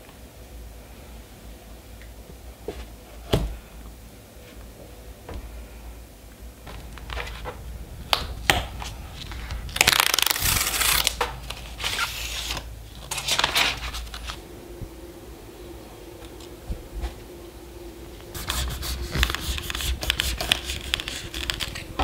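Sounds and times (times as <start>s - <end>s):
card and paper rustling: 8.6s - 14.4s, 18.4s - 22.0s
tear strip ripping: 9.7s - 11.2s.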